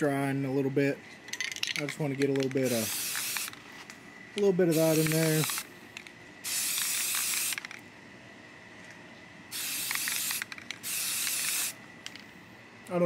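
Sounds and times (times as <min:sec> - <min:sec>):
spray paint can hissing: 0:02.6 - 0:03.6, 0:04.6 - 0:05.7, 0:06.4 - 0:07.8, 0:09.5 - 0:11.8.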